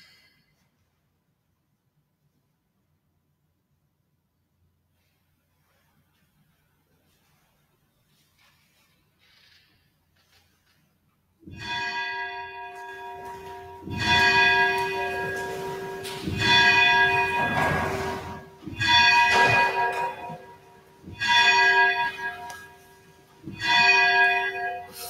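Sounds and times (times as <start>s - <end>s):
church bells ringing: 11.4s - 25.0s.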